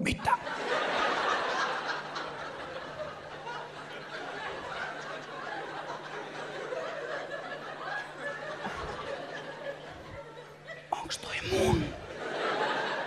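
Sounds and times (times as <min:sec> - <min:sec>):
audience laughing: 0:00.2 - 0:13.0
low crowd voices: 0:00.5 - 0:13.0
low hum: 0:11.0 - 0:13.0.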